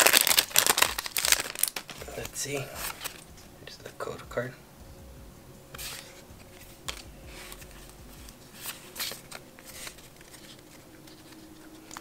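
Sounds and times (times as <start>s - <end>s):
trading cards swishing and flicking: 5.7s - 12.0s.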